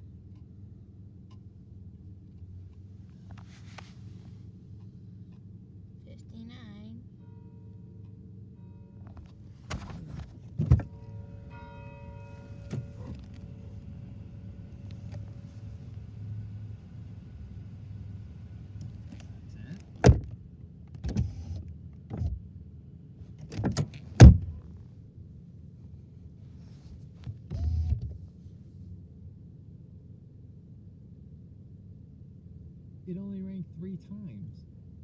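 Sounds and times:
knocks and thumps inside car: 9.0 - 11.2, 12.3 - 13.7, 18.8 - 21.4, 23.4 - 24.7
church bell tolling: 10.9 - 14.8.

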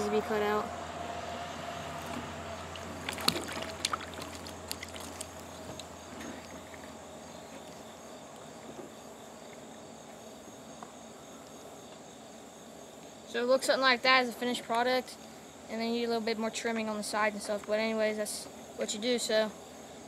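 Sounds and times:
water sloshing in plastic tub: 1.9 - 7.9.

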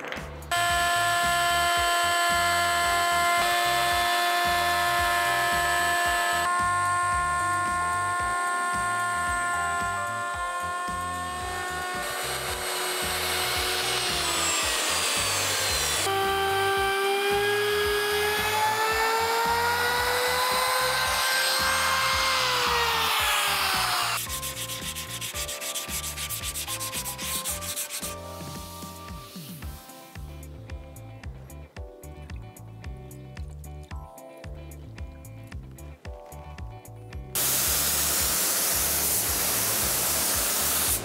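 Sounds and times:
trim router running: 0.5 - 24.2
electric router whining: 0.5 - 24.3
sandpaper rubbing on wood: 8.7 - 29.7, 37.4 - 41.0.

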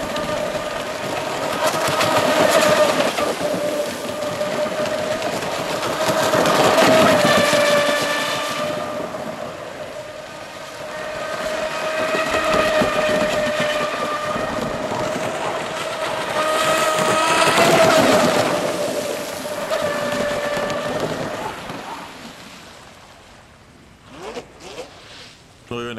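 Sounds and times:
hiss of water spray: 24.9 - 25.6.

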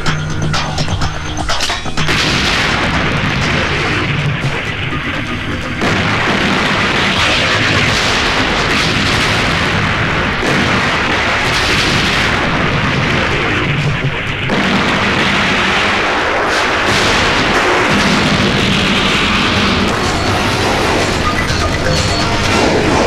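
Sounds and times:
large explosions: 1.9 - 23.0
fire burning: 2.0 - 23.0.

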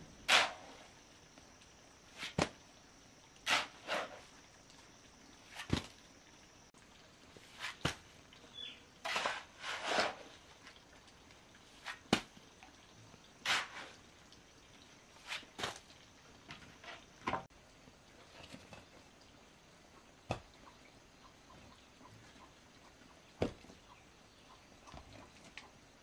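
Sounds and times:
shovel scraping wet cement: 0.2 - 0.9, 2.1 - 2.5, 3.4 - 4.3, 7.4 - 8.0, 9.0 - 10.4, 11.8 - 12.3, 13.4 - 14.0, 15.2 - 15.8.

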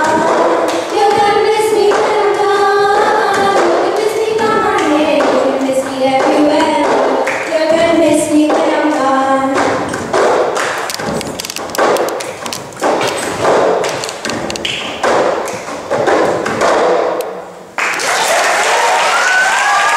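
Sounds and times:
hand claps: 6.2 - 7.5, 9.6 - 11.0, 16.6 - 19.9
applause: 17.8 - 19.9.

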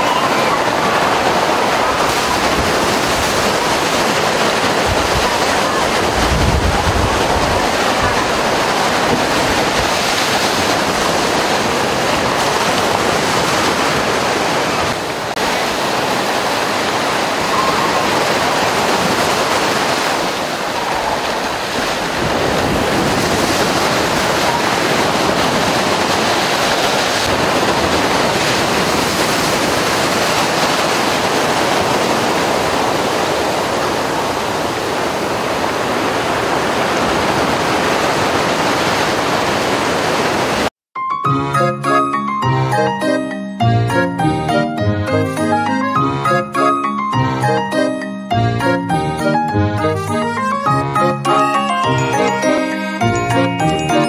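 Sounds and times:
waves breaking on rocky shore: 0.0 - 40.7.

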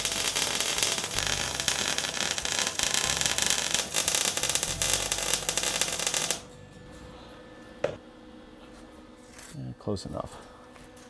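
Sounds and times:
welding arc crackling: 0.0 - 6.5.

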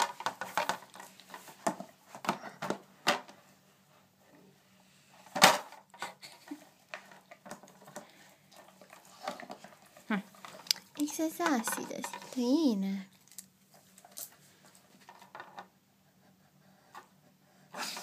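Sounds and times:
plastic puzzle toy clattering: 0.0 - 2.4, 9.2 - 14.3.

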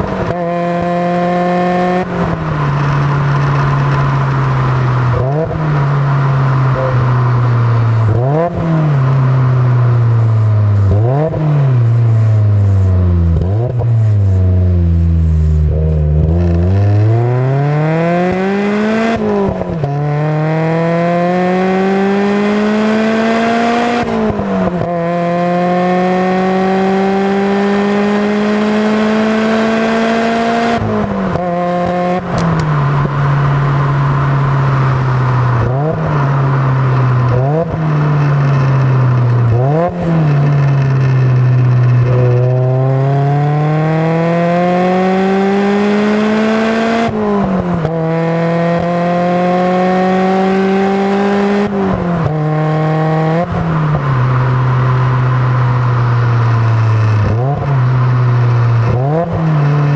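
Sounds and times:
car engine accelerating through gears: 0.0 - 59.9.

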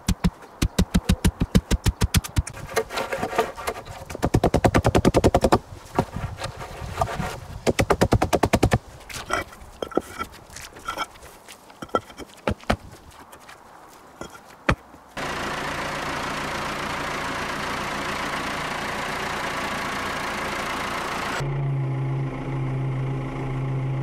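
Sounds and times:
log pounding sand: 0.0 - 15.0
paving slabs clinking: 8.6 - 15.0.

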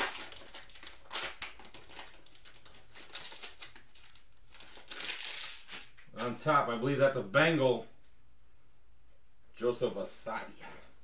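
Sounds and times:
foil wrapper crinkling: 0.0 - 6.5.

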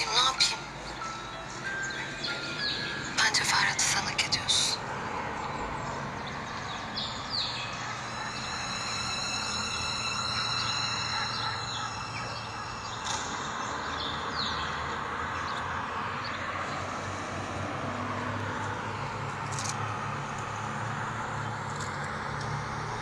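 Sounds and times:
high steady ringing tone: 0.0 - 15.0.

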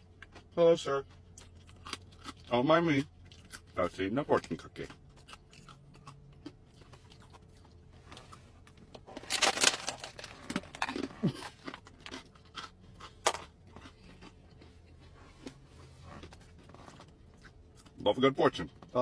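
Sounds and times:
cookie crunching and cracking: 0.0 - 15.0.

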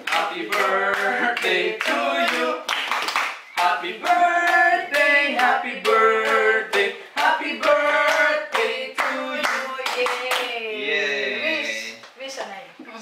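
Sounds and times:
people clapping in time: 0.0 - 4.6, 5.4 - 10.5
group singing a celebration song: 0.0 - 12.0.

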